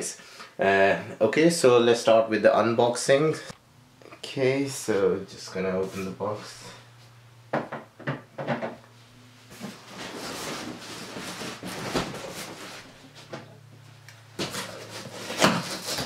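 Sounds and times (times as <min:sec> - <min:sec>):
cardboard scraping and rustling: 0:09.4 - 0:13.5, 0:14.4 - 0:16.0.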